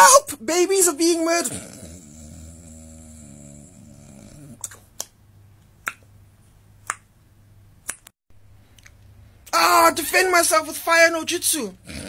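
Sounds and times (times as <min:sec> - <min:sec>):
man snoring: 0:01.4 - 0:04.6.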